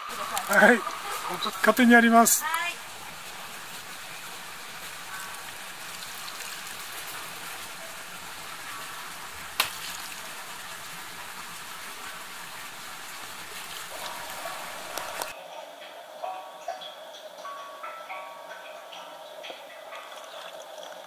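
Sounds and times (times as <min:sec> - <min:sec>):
water hissing: 0:00.0 - 0:15.4
drips pinging in a jar: 0:16.6 - 0:21.0.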